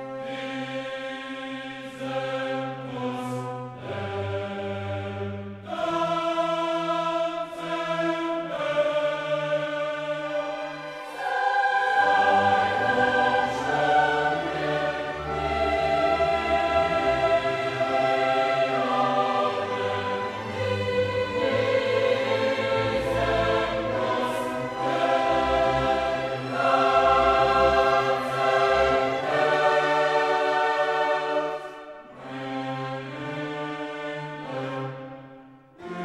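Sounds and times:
choir singing long notes: 0.0 - 36.0
orchestra playing: 10.3 - 35.2.

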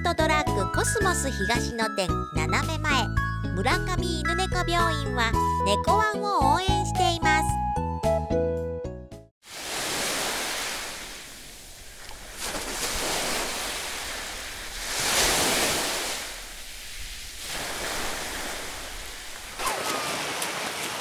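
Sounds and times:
sea waves washing onto beach: 9.4 - 21.0.

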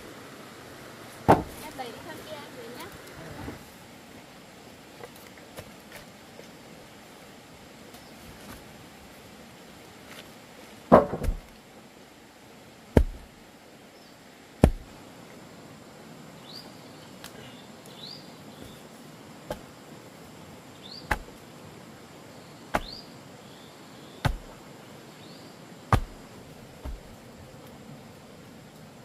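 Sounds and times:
sharp knocks with low thump: 1.3 - 1.6, 10.9 - 11.5, 13.0 - 13.3, 14.6 - 14.9, 21.1 - 21.4, 22.7 - 23.0, 24.2 - 24.6, 25.9 - 26.2, 26.8 - 27.2
bird chirping: 16.4 - 19.0, 20.7 - 21.2, 22.3 - 26.2.

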